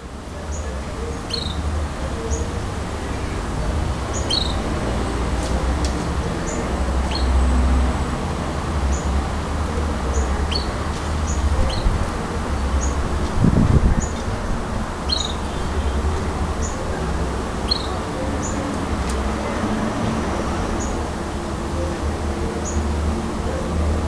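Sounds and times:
bird chirps and calls: 0.5 - 2.6, 4.1 - 4.7, 6.4 - 7.4, 10.1 - 12.0, 15.0 - 16.0, 17.6 - 18.7.

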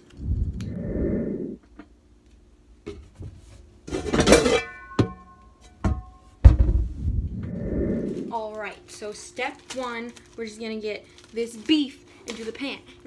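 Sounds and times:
pans clattering together: 3.9 - 6.6.

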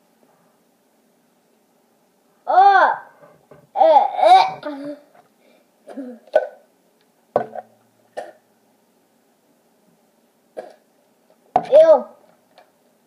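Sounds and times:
boy exclaiming in disgust: 2.5 - 3.1, 11.6 - 12.2.

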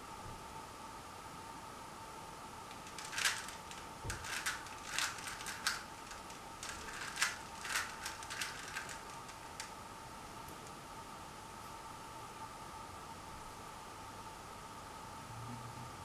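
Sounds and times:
puzzle cube layers clicking: 2.7 - 9.7.

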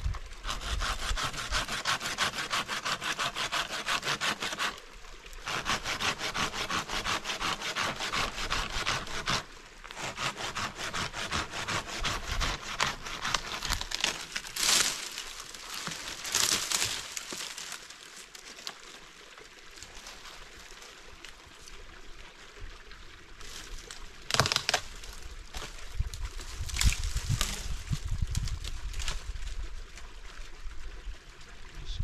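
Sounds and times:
dry twigs crackling and rustling: 13.1 - 21.4, 23.4 - 30.2.

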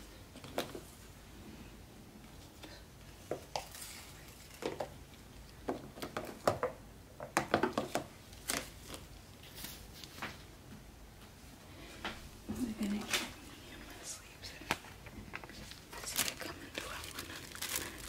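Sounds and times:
tissue paper rustling and crinkling: 15.5 - 18.0.

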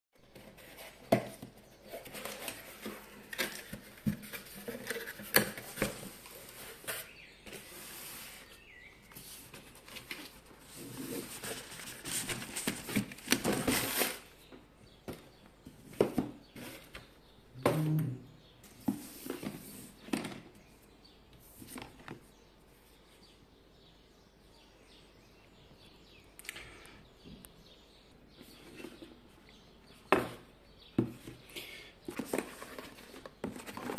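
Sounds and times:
cardboard packaging rustling: 0.3 - 14.4, 32.1 - 33.9.

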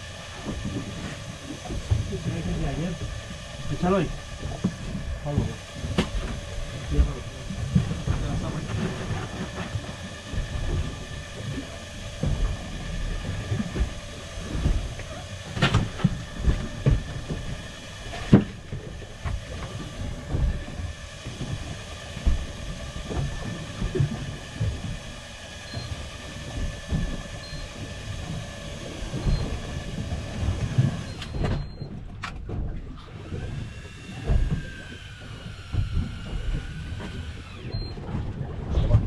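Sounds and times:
boat engine running: 0.0 - 39.0
water thumping against hull: 0.0 - 39.0.

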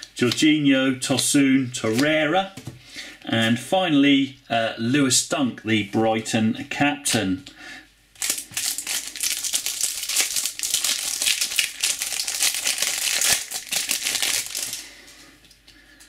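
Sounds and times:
shiny wrapper tearing and crinkling: 8.2 - 14.8.

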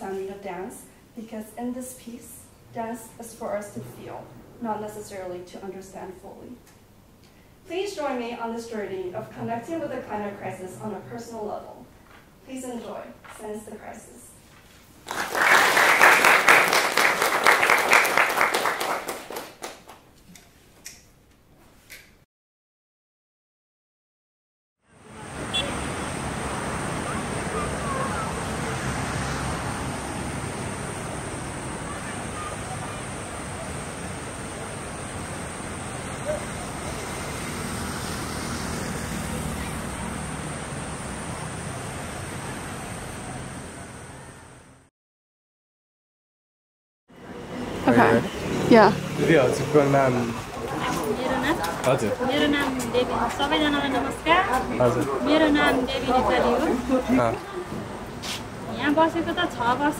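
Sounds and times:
road traffic rushing: 2.5 - 8.1, 24.9 - 44.9, 47.1 - 59.9
audience applauding: 15.0 - 20.1.

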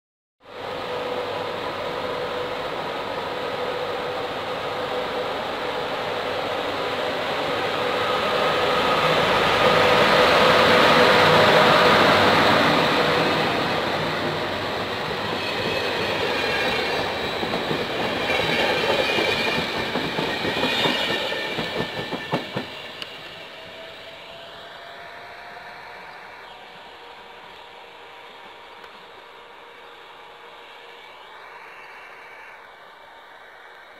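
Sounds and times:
wheels rushing on rail: 0.4 - 33.9
locomotive humming tones: 0.5 - 33.9.

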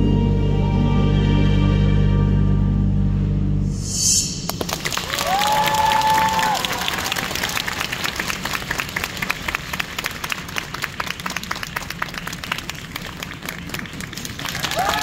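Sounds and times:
audience applause: 4.5 - 15.0.

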